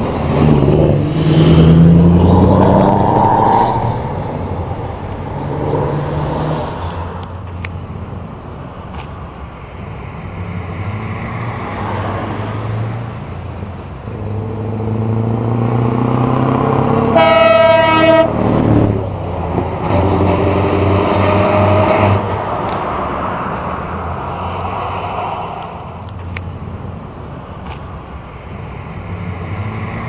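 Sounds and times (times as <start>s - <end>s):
truck engine revving: 0.0s - 7.4s, 14.1s - 26.4s
air horn blast: 17.1s - 18.4s, 20.6s - 22.2s.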